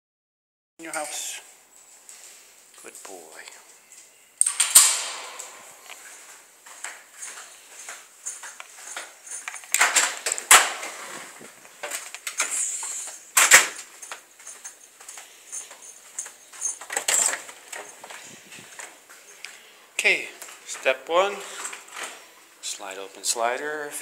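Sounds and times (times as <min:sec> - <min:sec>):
metal gate clicks and knocks: 0:04.4 - 0:06.0.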